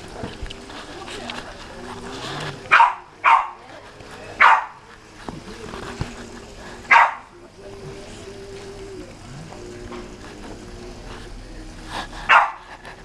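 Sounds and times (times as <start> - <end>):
dog barking: 2.7 - 3.6, 4.4 - 4.8, 6.9 - 7.4, 12.3 - 12.7.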